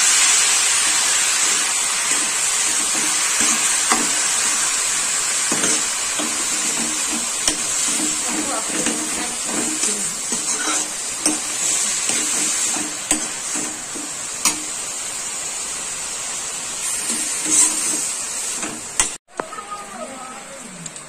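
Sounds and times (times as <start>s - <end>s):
mushrooms sizzling in a pan: 0.0s - 20.2s
metal spatula scraping: 2.1s - 14.8s, 16.8s - 19.1s
spatula clinking on pan: 9.8s - 13.3s.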